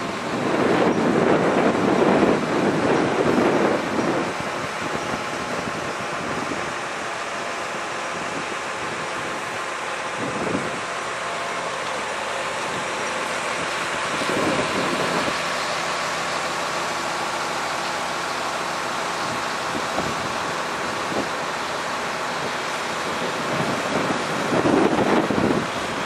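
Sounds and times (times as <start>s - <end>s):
wind rumble on microphone: 0.0s - 11.0s, 12.6s - 15.6s, 19.2s - 26.0s
diesel engine idling: 0.0s - 26.0s.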